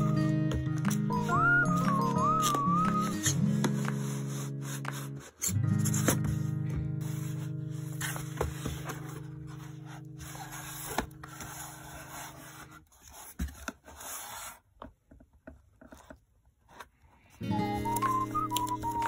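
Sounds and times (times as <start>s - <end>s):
background music: 0.0s - 12.7s, 17.4s - 19.0s
cardboard scraping and rustling: 3.5s - 19.0s.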